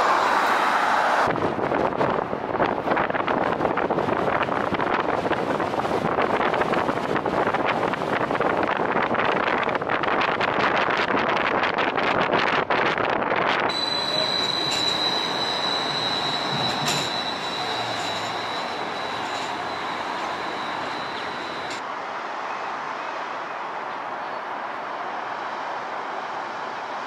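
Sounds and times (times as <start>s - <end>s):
city street noise: 0.0s - 27.0s
streetcar wheels squealing on rails: 13.7s - 21.8s.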